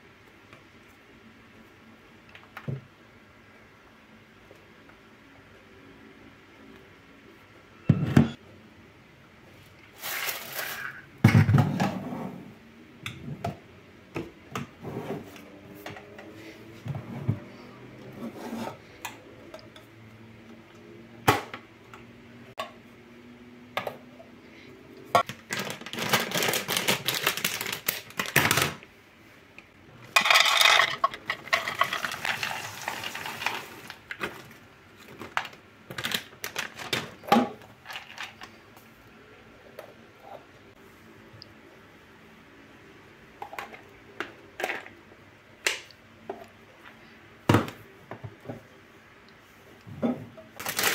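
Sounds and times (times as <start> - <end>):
plastic bag crinkling: 25.3 - 28.8, 35.4 - 37.2, 50.6 - 50.9
peanuts poured rattling: 30.2 - 34.0.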